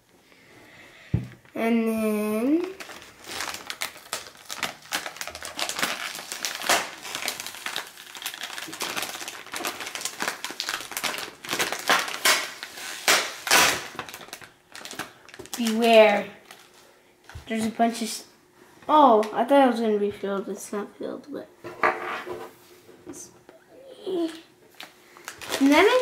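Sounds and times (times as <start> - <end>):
plastic bag crinkling: 2.4 - 17.7, 24.2 - 26.0
popcorn crunches: 2.6 - 16.8, 24.2 - 26.0.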